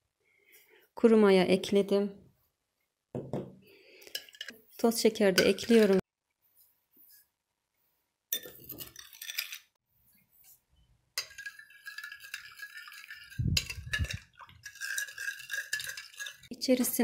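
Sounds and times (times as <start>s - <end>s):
spoon stirring in glass bowl: 4.0s - 4.8s, 5.4s - 6.0s, 8.3s - 9.8s, 11.2s - 17.0s.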